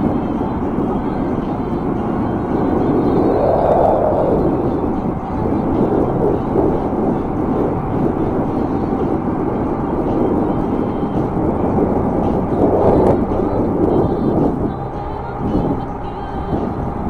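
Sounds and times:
highway traffic: 0.0 - 17.0
road noise: 0.0 - 17.0
wind buffeting microphone: 0.0 - 17.0.

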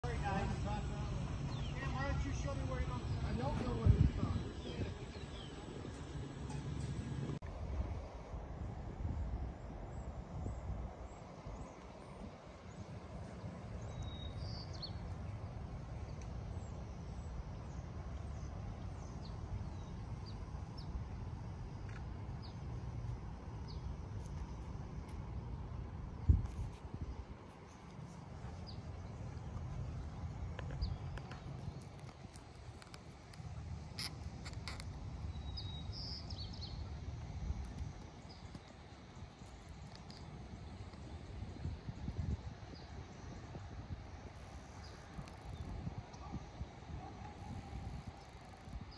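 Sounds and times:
small birds chirping: 0.0 - 7.3, 13.7 - 25.2, 27.5 - 41.6
wind rumble on microphone: 0.0 - 48.9
faint clicks: 30.5 - 35.0, 39.4 - 41.0.

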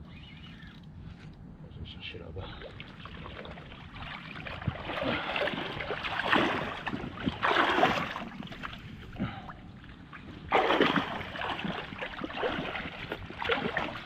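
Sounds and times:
river water rushing and lapping: 2.6 - 14.0.

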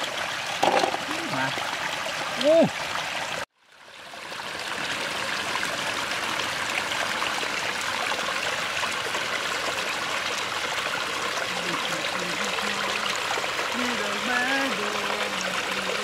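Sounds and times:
stream trickling into pool: 0.0 - 16.0.

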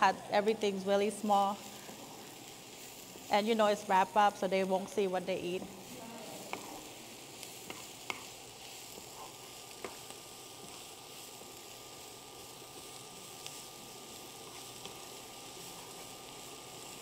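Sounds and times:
cabbage sizzling in oil: 0.0 - 17.0
spatula tapping a pan: 6.5 - 6.7.

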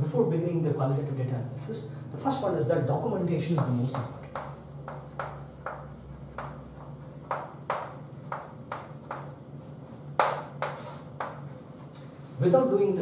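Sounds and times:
steady low hum: 0.0 - 13.0
chalk tapping on blackboard: 3.5 - 11.6.

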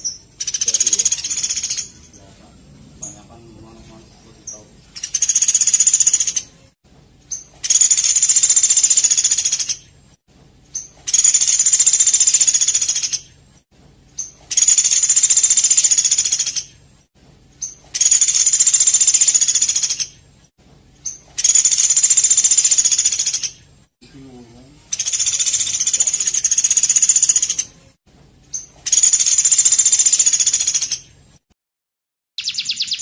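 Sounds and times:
songbird trilling: 0.0 - 6.5, 7.3 - 9.8, 14.2 - 16.7, 17.6 - 20.1, 21.0 - 23.6, 24.8 - 27.7, 28.5 - 31.0, 32.4 - 33.0.

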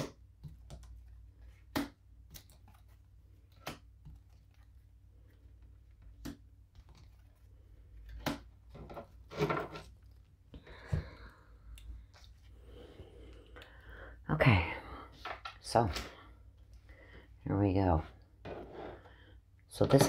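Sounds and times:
cards clicking and slapping on table: 0.0 - 4.5.

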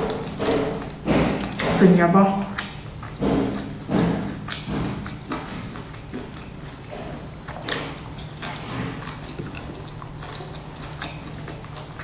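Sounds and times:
chewing clicks: 0.0 - 1.7, 2.4 - 12.0
biting dumpling: 2.5 - 12.0.

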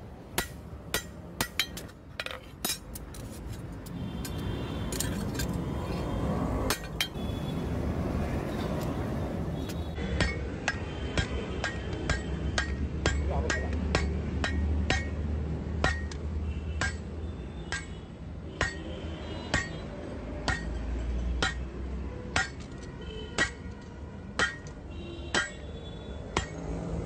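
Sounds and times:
hammer striking metal on anvil: 0.3 - 3.0, 10.0 - 18.0, 18.6 - 20.8, 21.4 - 21.7, 22.3 - 22.8, 23.4 - 23.7, 24.3 - 25.7, 26.3 - 26.7.

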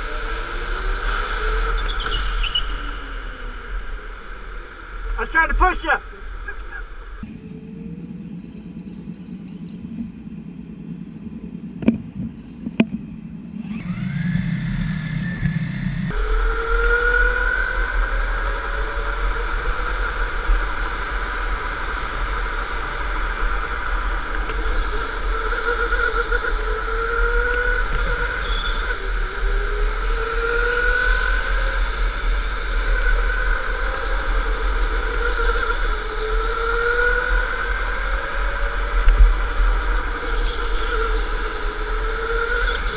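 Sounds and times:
go-kart electric motor whining: 13.6 - 42.9
tyres rumbling on track: 13.7 - 16.1.

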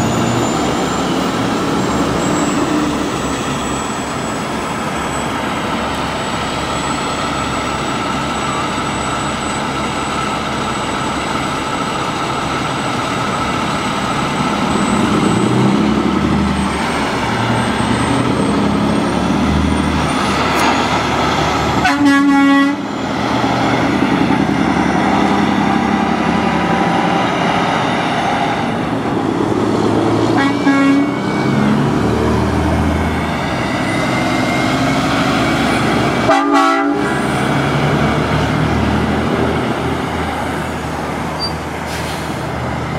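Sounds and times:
truck diesel engine: 0.0 - 42.9
truck air horn blast: 21.8 - 22.9, 30.3 - 31.4, 36.2 - 37.3.

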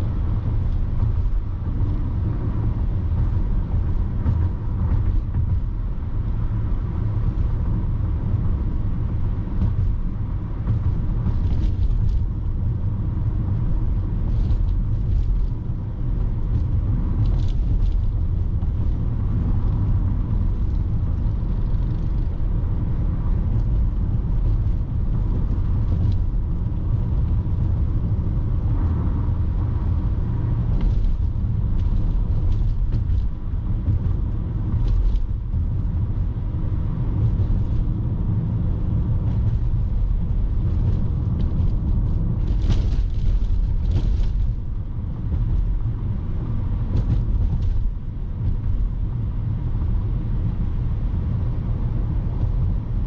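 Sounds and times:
car engine and tyre rumble: 0.0 - 53.0.

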